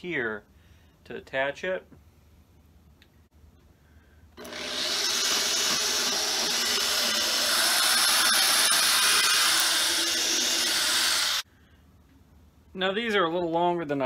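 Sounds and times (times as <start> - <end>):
power drill boring into wood: 4.4 - 11.4.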